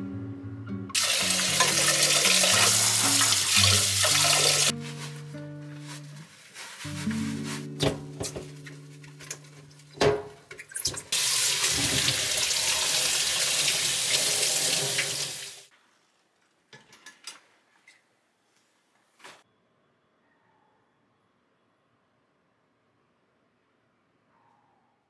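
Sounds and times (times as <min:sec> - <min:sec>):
tap water running into sink: 0:01.0 - 0:04.7, 0:10.5 - 0:15.7.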